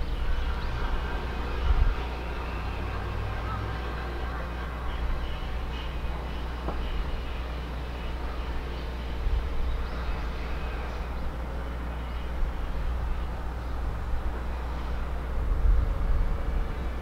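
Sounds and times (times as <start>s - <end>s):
faint mid-pitched hum: 0.0s - 17.0s.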